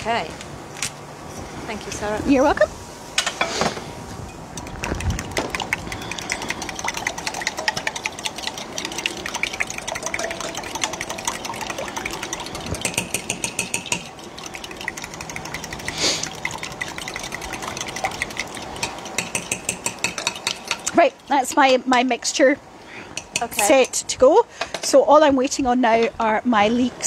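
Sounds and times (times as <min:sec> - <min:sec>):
fork beating eggs in glass jug: 0:04.6 - 0:21.7.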